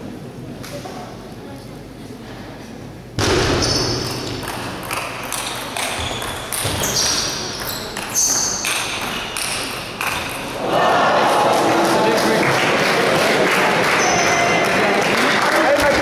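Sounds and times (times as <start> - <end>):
ball clicking off bats and table: 3.2 - 10.6
shoes squeaking on floor: 3.6 - 4.3, 4.9 - 10.5
murmuring spectators: 7.1 - 16.0.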